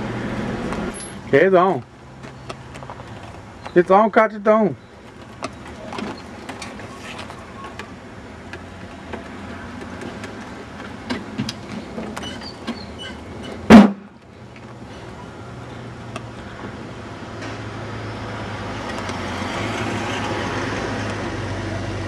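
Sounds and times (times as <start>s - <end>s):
loud sharp thump: 13.7s - 14.1s.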